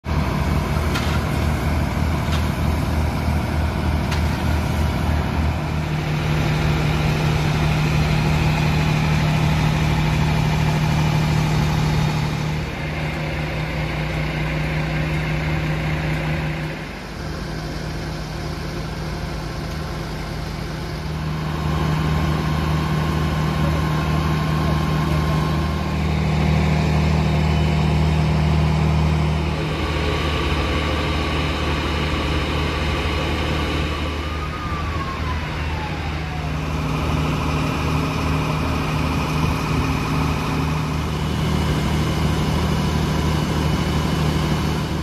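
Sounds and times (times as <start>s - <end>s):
diesel engines running: 0.0s - 45.0s.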